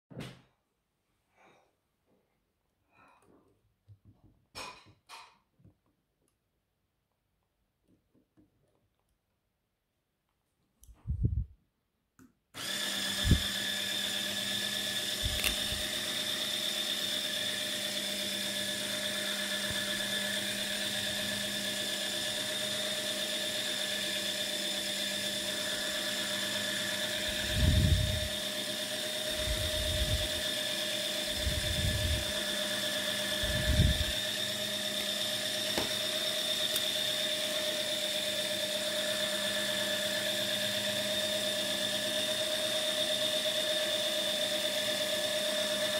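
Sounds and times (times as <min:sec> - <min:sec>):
electric motor whine: 0:12.6 - 0:45.9.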